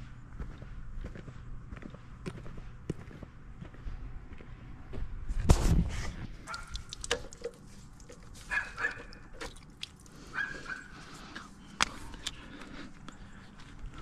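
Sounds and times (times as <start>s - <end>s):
hose fittings clicking and rattling: 6.5s - 10.1s.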